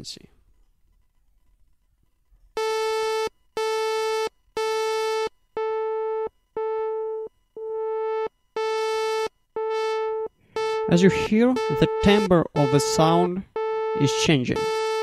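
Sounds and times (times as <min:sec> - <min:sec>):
synthesizer sawtooth note: 0:09.6 - 0:15.0.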